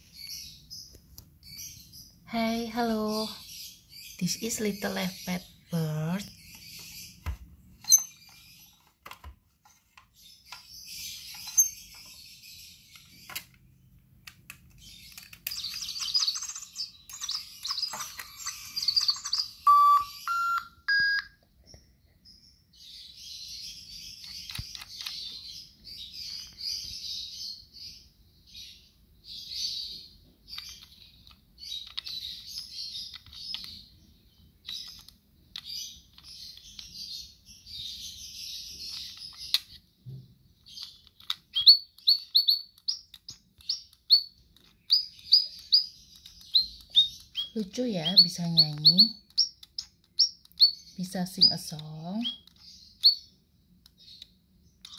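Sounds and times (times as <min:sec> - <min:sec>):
warbling birdsong: 0:00.0 - 0:54.9
toy bird chirping: 0:07.8 - 0:08.9, 0:14.8 - 0:21.4, 0:23.4 - 0:27.7, 0:29.4 - 0:39.9, 0:40.6 - 0:54.9
rising short beeps: 0:19.7 - 0:21.3.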